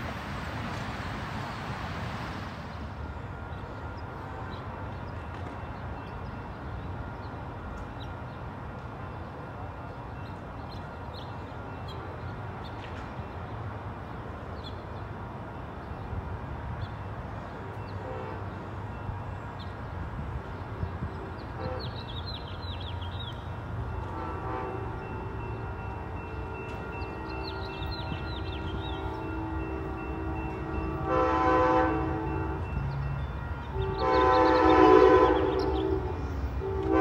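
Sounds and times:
distant locomotive horn: 3.1s - 5.1s, 17.6s - 19.6s, 20.7s - 37.0s.

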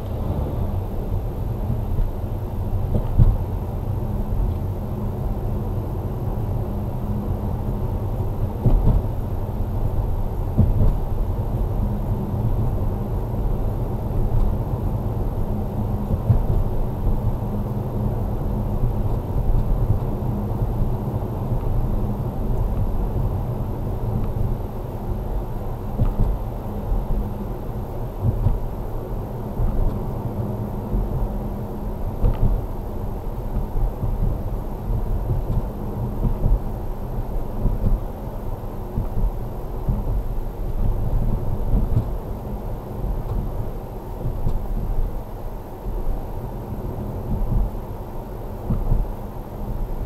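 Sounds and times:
car engine and tyre rumble: 0.0s - 50.0s
car knocking over bumps: 8.6s - 9.1s, 10.6s - 11.0s, 25.9s - 26.4s.

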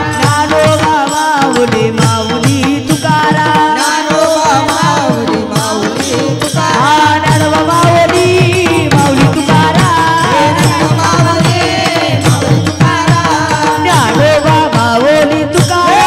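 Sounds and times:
barrel drum beating fast: 0.0s - 16.0s
voices singing a devotional chant: 0.0s - 16.0s.

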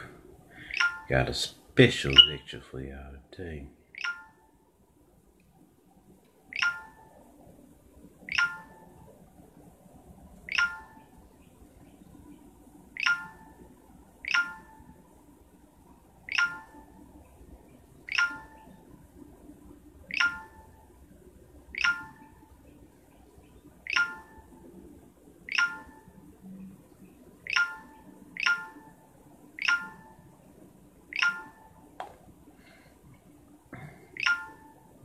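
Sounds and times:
faint room hiss: 0.0s - 35.0s
smartphone notification chimes: 0.7s - 1.3s, 4.0s - 4.4s, 6.5s - 7.2s, 8.3s - 8.9s, 10.5s - 11.1s, 13.0s - 13.6s, 14.2s - 14.9s, 16.3s - 17.0s, 18.1s - 18.7s, 20.1s - 20.7s, 21.8s - 22.4s, 23.9s - 24.5s, 25.5s - 26.1s, 27.5s - 29.0s, 29.6s - 30.2s, 31.1s - 31.8s, 34.2s - 34.8s.

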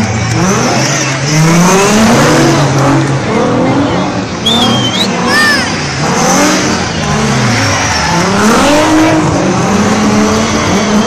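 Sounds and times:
race car engines revving: 0.0s - 11.0s.

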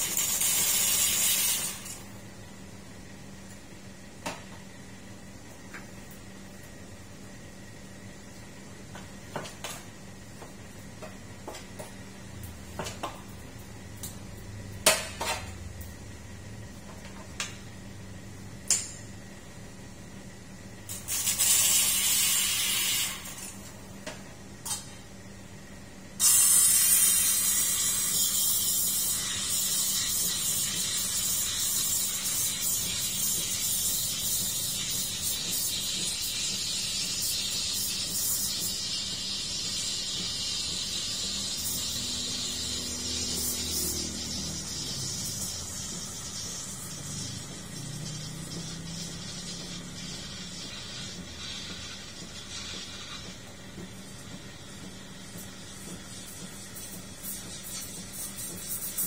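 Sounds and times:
steam wand hissing: 26.2s - 53.4s.

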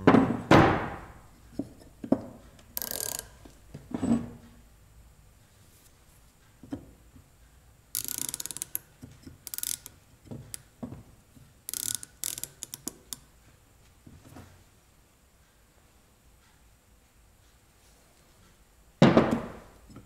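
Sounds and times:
micrometer ratchet clicking: 2.8s - 3.5s, 7.9s - 10.7s, 11.7s - 13.2s.

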